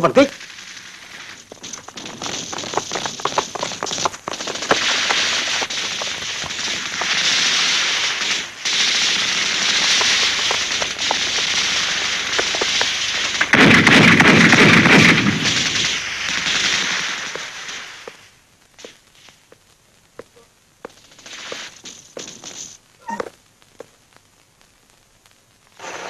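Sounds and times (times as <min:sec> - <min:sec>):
loud explosion: 0:00.0 - 0:18.2
dense steady hiss: 0:00.0 - 0:26.0
rifle shots: 0:00.2 - 0:18.2.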